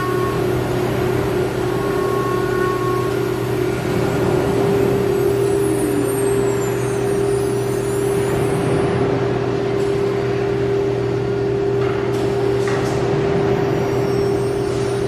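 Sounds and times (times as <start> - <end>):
faint high whines: 0.0 - 8.5
broad machine noise: 0.0 - 15.0.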